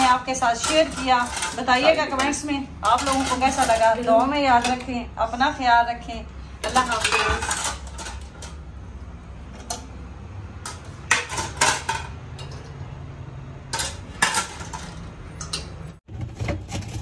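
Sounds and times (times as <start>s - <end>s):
dishes and glassware clinking: 6.6s - 8.6s, 10.7s - 12.8s, 13.7s - 15.9s.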